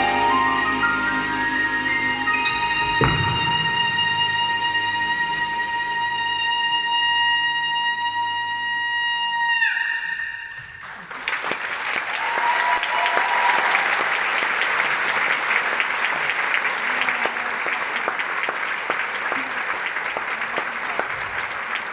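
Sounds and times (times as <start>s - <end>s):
audience applauding: 10.5s - 21.9s.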